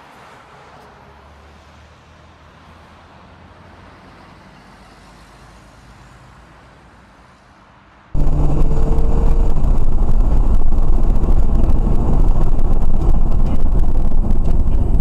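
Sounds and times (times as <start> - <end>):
road noise hiss: 0.0 - 15.0
car engine hum: 8.2 - 15.0.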